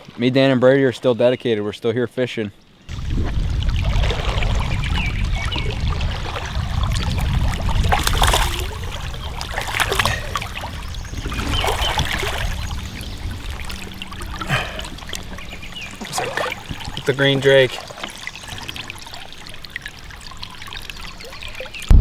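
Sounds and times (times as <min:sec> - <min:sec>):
steady low rumble: 0:02.9 - 0:17.5
water splashing from thrashing fish: 0:02.9 - 0:21.9.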